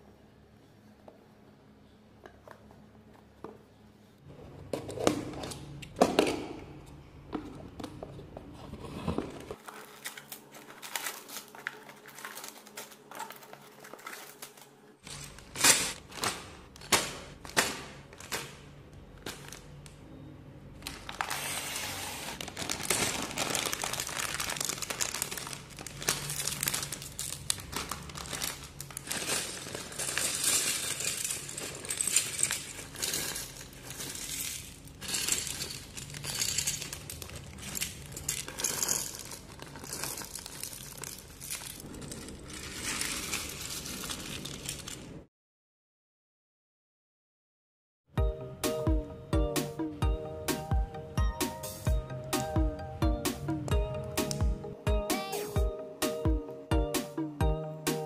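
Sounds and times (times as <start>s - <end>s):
plastic bags crinkling: 9.4s - 19.8s, 20.7s - 45.2s.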